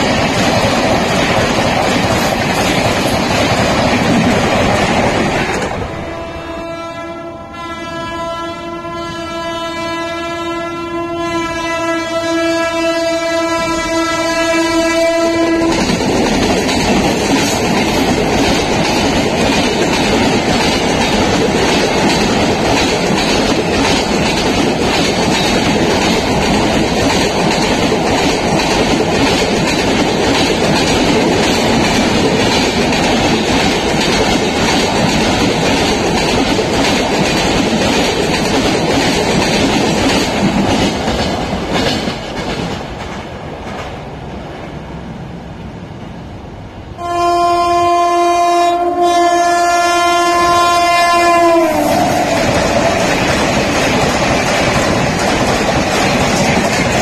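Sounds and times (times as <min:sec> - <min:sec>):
train wheels clattering over rail joints: 0:00.0 - 0:05.8, 0:15.5 - 0:44.0, 0:51.3 - 0:57.0
locomotive horn blast: 0:05.9 - 0:15.8, 0:47.0 - 0:52.4.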